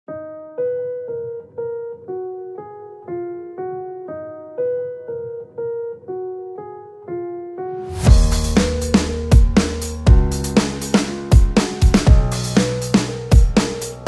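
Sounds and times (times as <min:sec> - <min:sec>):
simple melody of struck notes: 0:08.0 - 0:14.0.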